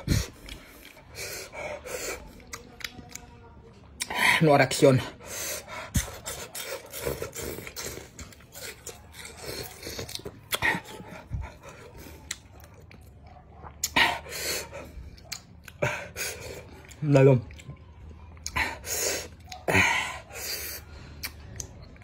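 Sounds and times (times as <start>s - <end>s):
man chewing with mouth smacks: 0.0s - 4.2s, 5.2s - 22.0s
man breathing hard: 5.2s - 6.0s.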